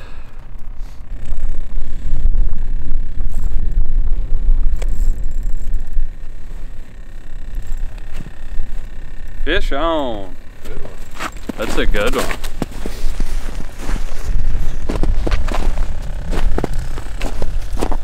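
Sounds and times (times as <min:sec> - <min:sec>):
wind buffeting microphone: 0:13.0 - 0:18.0.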